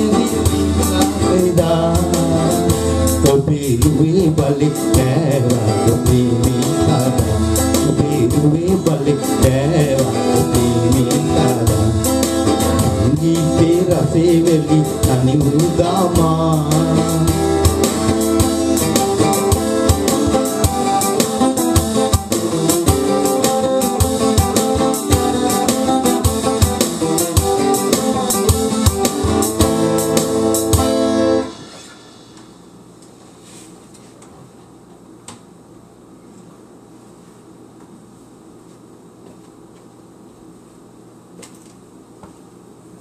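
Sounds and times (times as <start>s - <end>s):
acoustic guitar strumming: 0.0s - 32.7s
organ-like keyboard with steady beat: 0.0s - 33.6s.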